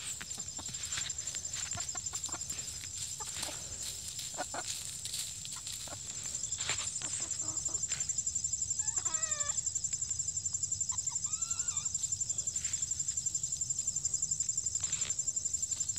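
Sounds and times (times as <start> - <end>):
scratching in dry leaves: 0.0 - 7.9
hens calling softly: 0.0 - 9.6, 10.9 - 13.2.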